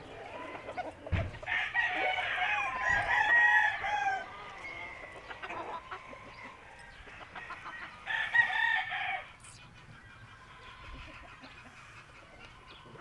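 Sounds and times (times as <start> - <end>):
roosters crowing: 0.0 - 9.4.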